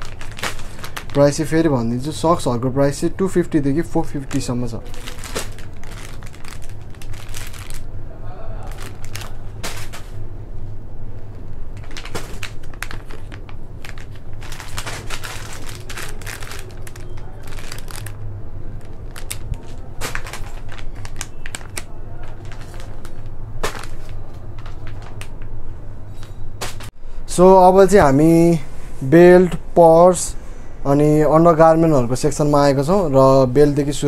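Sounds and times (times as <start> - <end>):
rustling and clicking of items: 0.0 - 1.7, 3.8 - 7.9, 8.7 - 10.2, 11.2 - 18.2, 18.8 - 27.0
steady low hum: 0.0 - 34.0.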